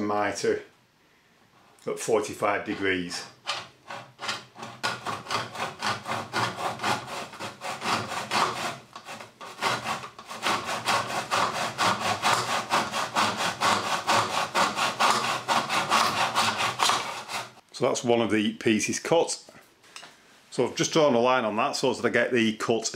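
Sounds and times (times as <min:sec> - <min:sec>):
hand saw cutting plastic: 0:02.8 - 0:17.6.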